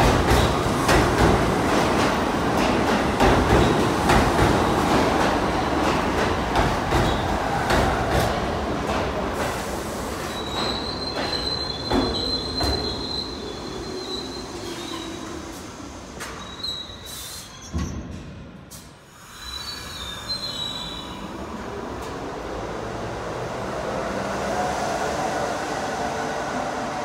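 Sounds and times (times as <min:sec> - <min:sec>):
subway train rumbling on rails: 0:00.0 - 0:27.0
high wheel squeal: 0:10.2 - 0:15.3, 0:16.3 - 0:17.8, 0:19.3 - 0:21.3.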